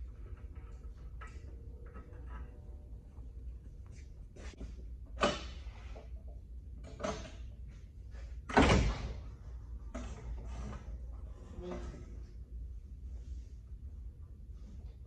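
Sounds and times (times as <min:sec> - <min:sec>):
metal clanks and knocks: 0:00.0 - 0:03.2
low steady hum: 0:00.0 - 0:15.0.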